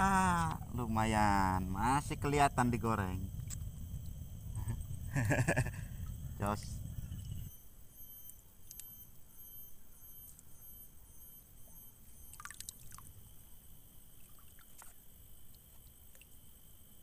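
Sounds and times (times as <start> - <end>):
faint high steady tones: 0.0 - 17.0
low steady rumble: 0.0 - 17.0
soft clicks: 8.2 - 9.0.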